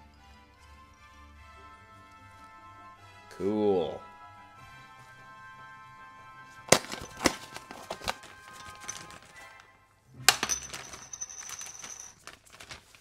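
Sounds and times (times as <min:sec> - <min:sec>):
quiet background music: 0:00.0 - 0:13.0
foil bag rustling and crinkling: 0:06.7 - 0:09.6, 0:10.7 - 0:13.0.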